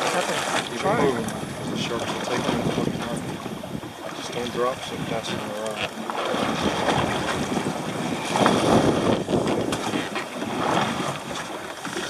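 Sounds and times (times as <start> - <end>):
sea noise: 0.0 - 12.0
wind rushing over microphone: 0.6 - 5.6, 6.2 - 12.0.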